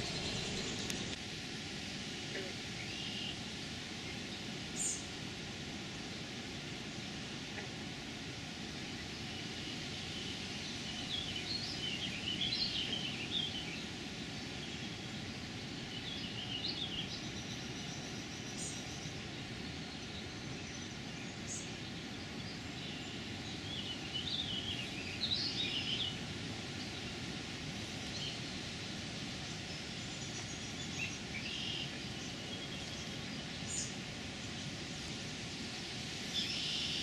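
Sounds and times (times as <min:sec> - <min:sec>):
low background rumble: 0:00.0 - 0:01.2
nestlings chirping: 0:00.0 - 0:01.2.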